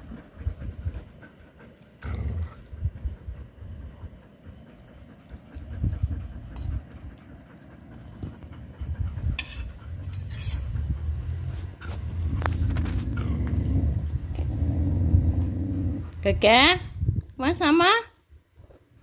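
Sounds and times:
handling noise rumble: 8.2s - 17.2s.

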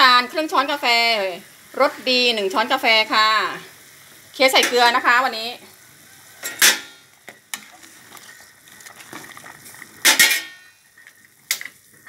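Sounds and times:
ladle stirring boiling broth: 6.0s - 12.0s
ladle clanking against metal pot: 10.0s - 10.7s.

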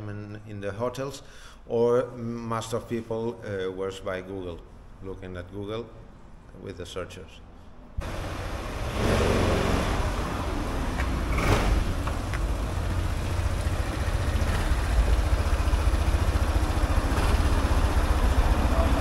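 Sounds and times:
scooter engine idling: 8.0s - 19.0s.

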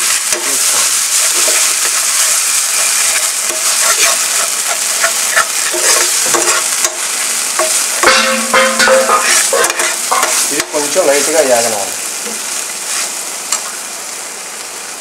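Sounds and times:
food sizzling in a pan: 0.0s - 15.0s
spoon scraping and tapping pan: 2.8s - 10.8s.

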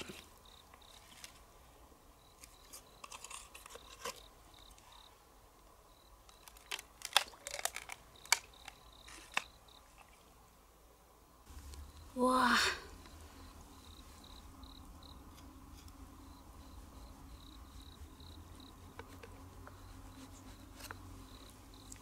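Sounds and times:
knife scraping shell: 2.4s - 4.3s
clicks and crunches on shell: 6.3s - 9.6s.

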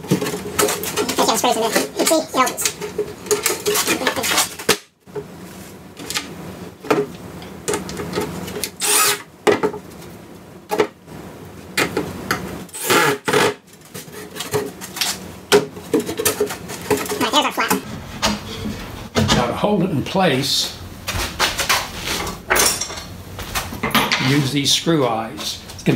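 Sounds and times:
cordless drill driving screws: 8.8s - 9.2s.

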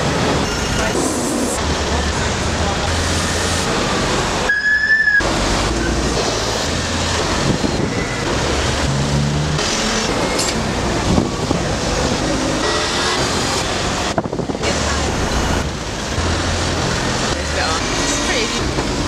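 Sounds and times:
buses passing: 0.0s - 19.0s
high-pitched tone: 4.5s - 5.3s.

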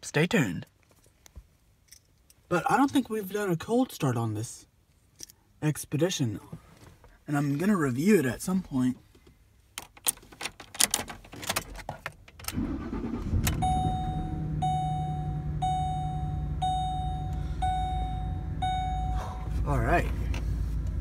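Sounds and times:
keys rattling in ignition: 9.8s - 19.2s
car engine starting and idling: 12.3s - 21.0s
dashboard warning chime: 12.8s - 19.9s.

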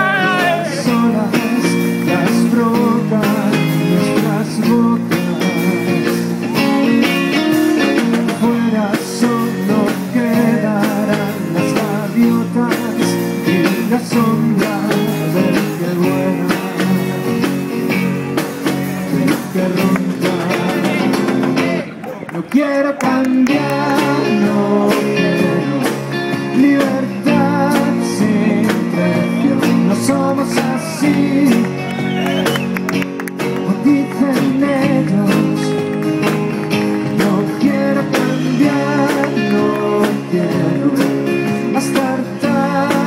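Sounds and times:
song with steady beat: 32.6s - 43.0s.

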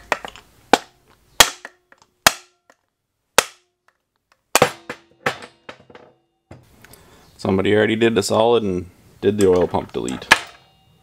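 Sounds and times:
hammer striking metal: 4.6s - 6.6s.

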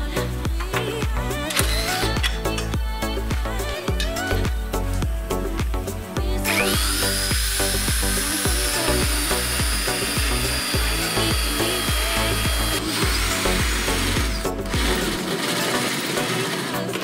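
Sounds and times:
music with bass beat: 0.0s - 16.4s
belt sander grinding metal: 6.4s - 17.0s.

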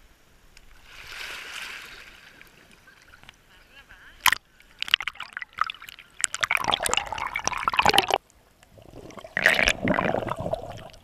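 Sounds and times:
sea water sloshing: 0.7s - 11.0s
underwater bubbles blown: 4.2s - 11.0s.

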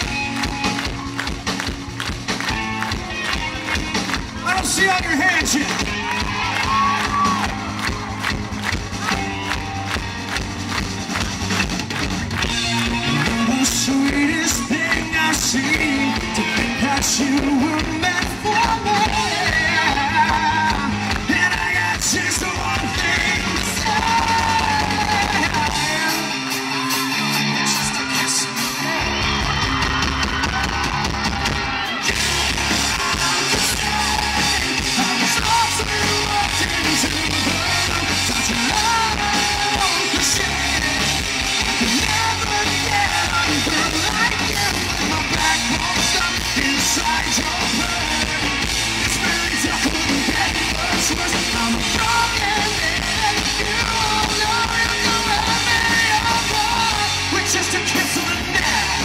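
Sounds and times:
live rock band playing: 0.0s - 59.0s
man singing loudly: 13.0s - 26.4s, 31.9s - 59.0s.

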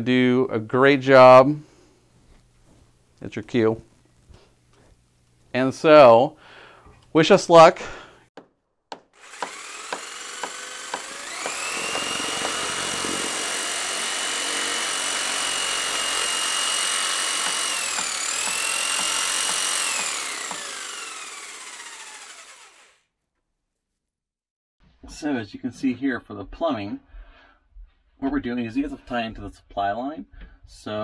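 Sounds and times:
power tool motor whine: 9.2s - 23.0s.

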